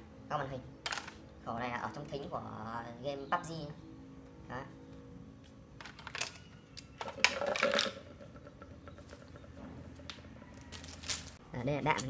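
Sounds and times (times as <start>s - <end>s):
plastic toy parts clattering on tile: 0.8s - 1.2s, 5.8s - 9.5s.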